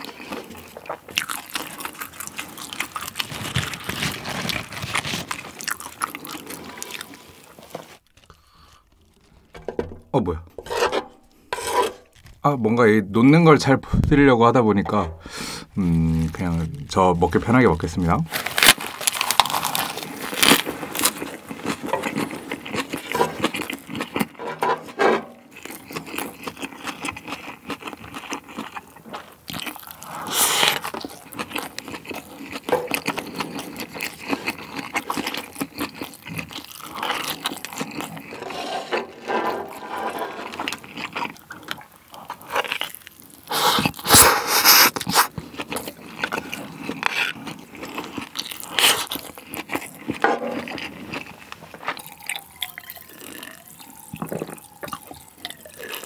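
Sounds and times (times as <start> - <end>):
chewing and crunching: 0.0 - 9.6, 15.8 - 56.0
wooden spoon scraping metal tray: 9.6 - 12.2, 24.3 - 25.5, 38.2 - 40.7, 50.2 - 50.8.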